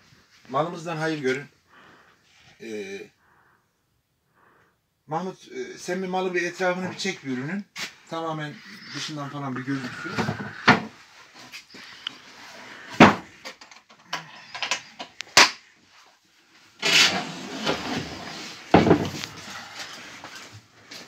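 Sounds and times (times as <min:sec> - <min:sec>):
box scraping on wooden table: 0:16.8 - 0:20.5.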